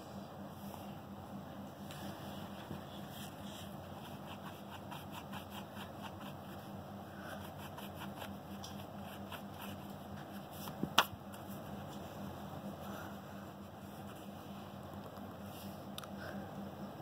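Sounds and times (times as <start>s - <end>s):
pencil scratching on paper: 3.1s - 6.8s, 7.4s - 10.6s.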